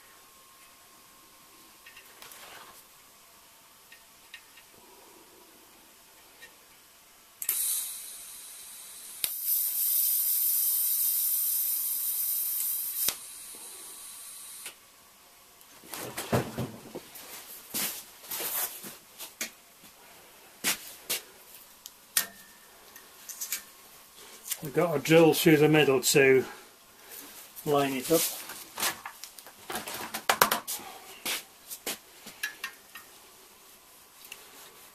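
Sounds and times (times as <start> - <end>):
shielding gas hiss: 4.6 - 15.1, 22.7 - 29.1, 30.6 - 34.9
welding arc striking click: 7.4 - 8.3, 8.9 - 13.4
welding arc hissing: 7.4 - 14.8, 27.6 - 28.5.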